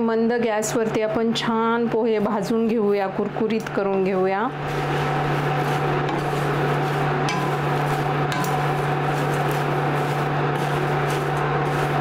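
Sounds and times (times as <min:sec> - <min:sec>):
steady low hum: 0:01.5 - 0:12.0
spatula scraping dry rice flakes: 0:04.2 - 0:12.0
spatula knocking on pan: 0:07.1 - 0:09.7.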